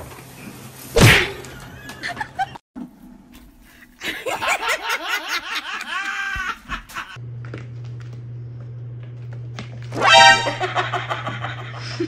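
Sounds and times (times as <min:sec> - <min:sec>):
person laughing hard: 0:04.0 - 0:07.2.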